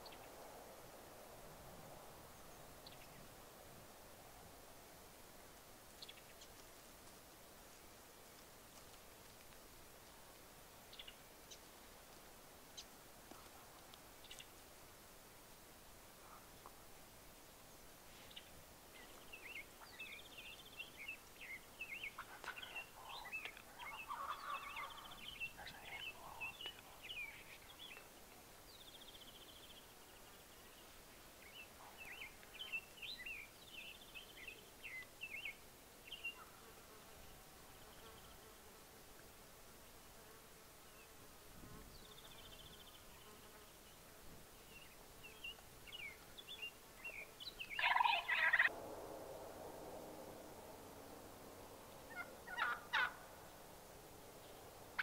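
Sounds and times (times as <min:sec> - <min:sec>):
small birds chirping: 0:10.9 - 0:11.7, 0:18.2 - 0:36.5, 0:44.6 - 0:48.7
turkey gobbling: 0:22.2 - 0:25.0, 0:47.8 - 0:48.7, 0:52.1 - 0:53.3.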